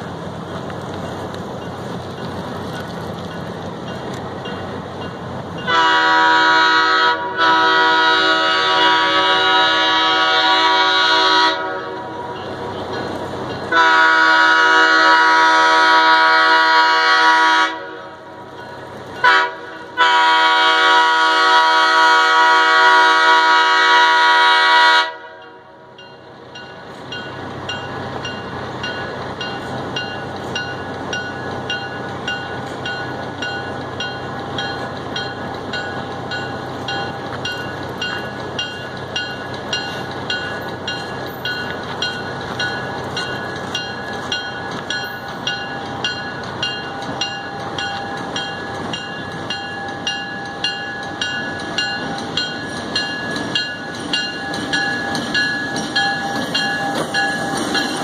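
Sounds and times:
train rumble: 0.0 - 58.0
train horn: 5.6 - 12.3, 13.7 - 18.4, 19.2 - 25.7.

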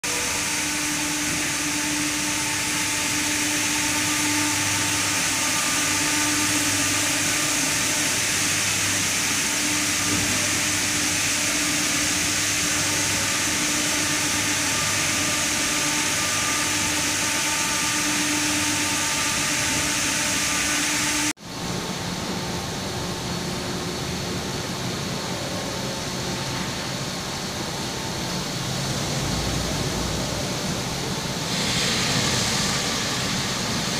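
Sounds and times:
brushes and water spray hissing: 31.5 - 33.9.

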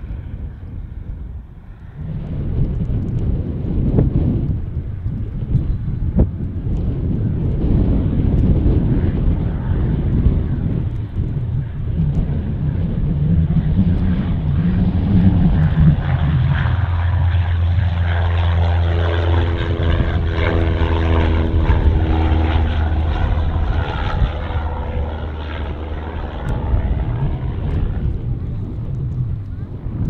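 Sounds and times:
propeller plane engine droning: 0.0 - 30.0
higher engine tone: 12.0 - 29.8.

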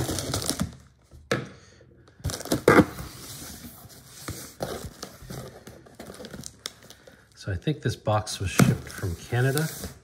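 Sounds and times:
tape tearing: 0.0 - 0.8, 8.6 - 10.0
plastic packing crinkling: 4.5 - 7.4.

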